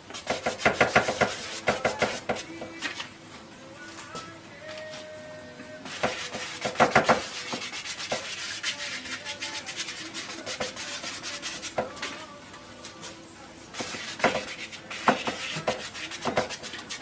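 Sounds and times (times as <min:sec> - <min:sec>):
paintbrush scrubbing on canvas: 0:05.9 - 0:11.8, 0:13.8 - 0:17.0.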